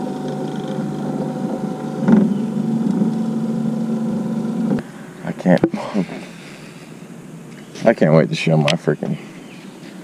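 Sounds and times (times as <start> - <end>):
electric motor humming: 0.0 - 4.9.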